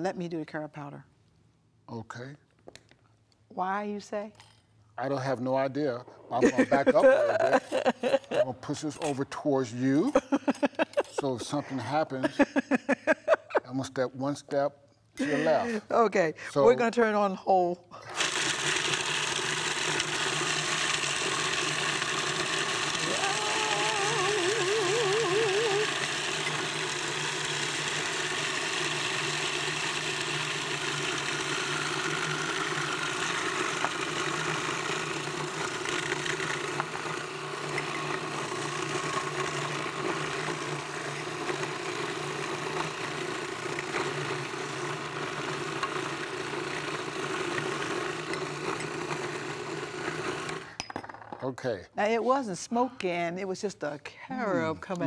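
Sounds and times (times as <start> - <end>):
food processor motor grinding: 18.0 - 50.8.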